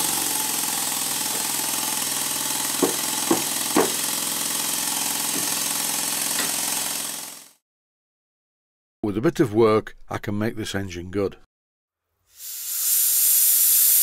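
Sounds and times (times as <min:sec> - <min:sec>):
steam engine hiss and hum: 0:00.0 - 0:06.5, 0:12.3 - 0:14.0
mallet knocking on metal: 0:02.8 - 0:04.0.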